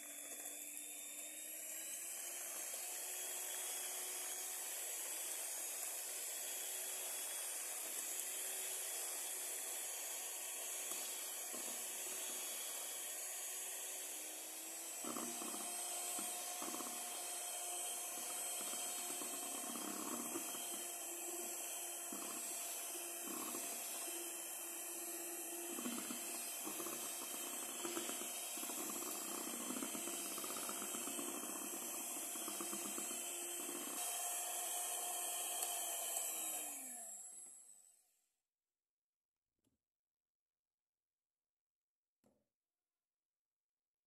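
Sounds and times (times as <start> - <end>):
batter churning: 0.0 - 36.9
electric hand mixer whine: 0.0 - 37.8.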